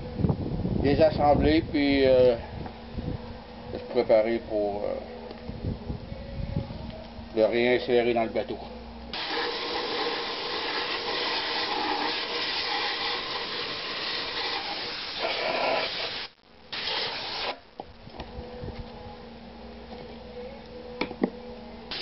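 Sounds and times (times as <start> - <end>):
low steady hum: 0.0 - 14.3, 17.6 - 22.0
sandblast gun hissing: 9.1 - 17.6.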